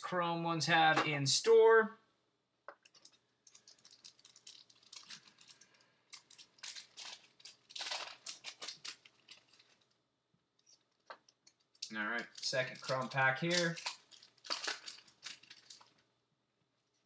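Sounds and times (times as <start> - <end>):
foil wrapper crinkling: 2.8 - 10.0, 10.6 - 16.0
cards clicking: 11.1 - 15.9.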